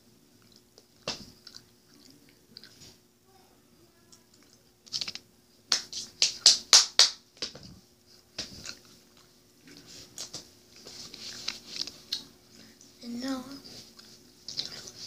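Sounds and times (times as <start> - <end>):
person chewing candy: 0.4 - 3.0, 8.5 - 12.7, 13.9 - 15.0.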